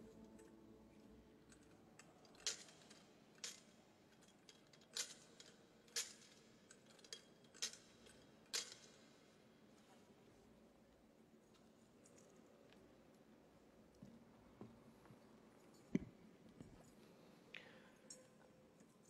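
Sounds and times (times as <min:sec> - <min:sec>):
censer chains clinking: 0:01.4 - 0:09.3.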